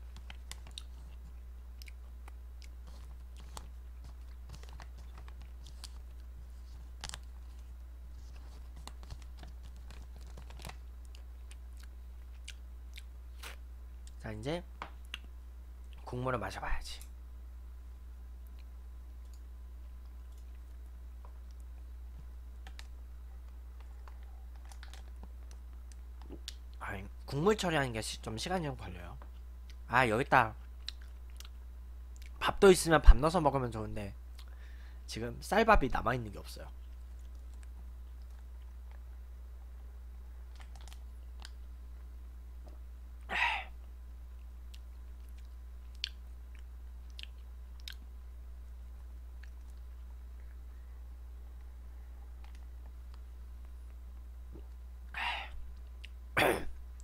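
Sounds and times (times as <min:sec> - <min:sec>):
low electrical hum: 0:00.0 - 0:57.0
mouth clicks and lip sounds: 0:34.3 - 0:34.6, 0:44.7 - 0:48.1.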